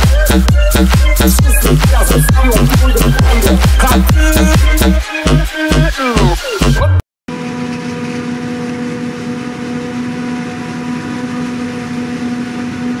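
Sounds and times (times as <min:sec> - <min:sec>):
constant hum: 0:07.3 - 0:13.0
farm machines droning: 0:07.3 - 0:13.0.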